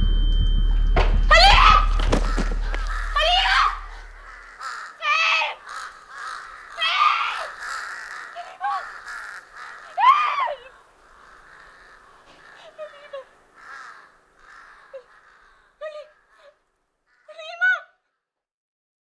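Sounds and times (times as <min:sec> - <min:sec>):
deep rumble: 0:00.0 - 0:04.4
crows cawing: 0:01.0 - 0:18.1.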